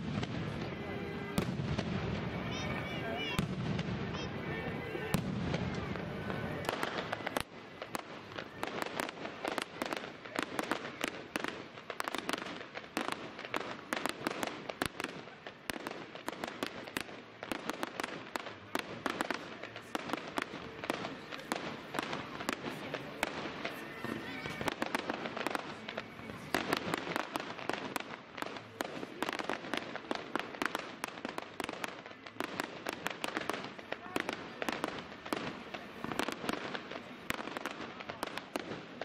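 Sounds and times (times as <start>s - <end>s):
fireworks bangs and crackles: 0.0s - 39.0s.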